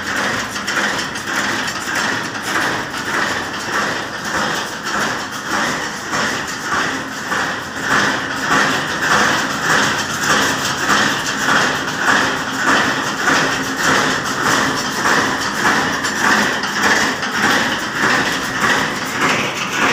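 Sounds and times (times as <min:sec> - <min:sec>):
machinery rhythmic clatter: 0:00.0 - 0:19.9.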